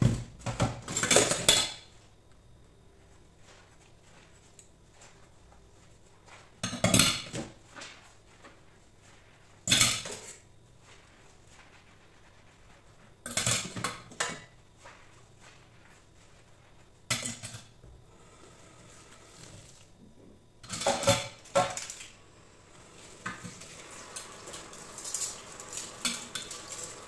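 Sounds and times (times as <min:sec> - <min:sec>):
cutlery clattering in metal sink: 0:09.7 - 0:10.4, 0:20.6 - 0:22.0.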